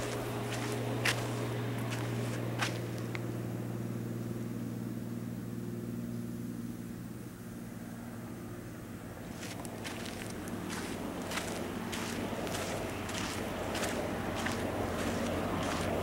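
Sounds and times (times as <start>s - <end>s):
footsteps crunching on gravel: 0.0s - 3.1s, 9.2s - 16.0s
vehicle engine humming: 0.0s - 16.0s.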